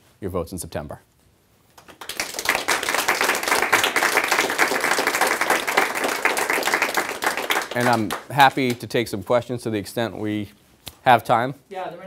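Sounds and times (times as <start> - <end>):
audience applauding: 1.8 - 8.9.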